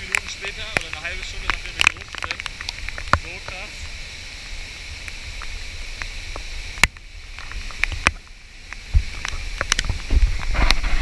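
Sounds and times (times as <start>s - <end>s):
heavy rain hiss: 0.0s - 11.0s
rushing water: 0.0s - 11.0s
low rumbling thumps: 8.8s - 9.2s.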